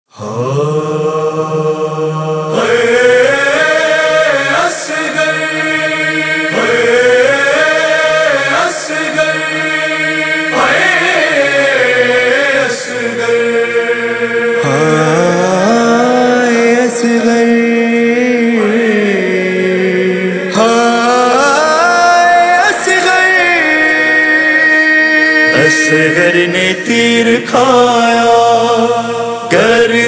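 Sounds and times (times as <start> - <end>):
chorus chanting lament: 0.1 - 30.0
steady low drone: 9.3 - 16.4.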